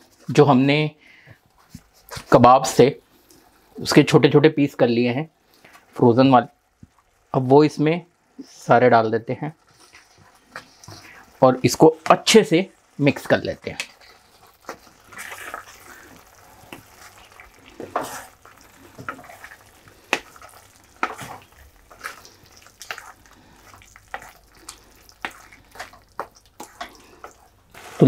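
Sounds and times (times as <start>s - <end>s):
gravy cooking: 0.0s - 28.0s
wooden spatula scraping pan: 9.6s - 11.3s, 13.8s - 28.0s.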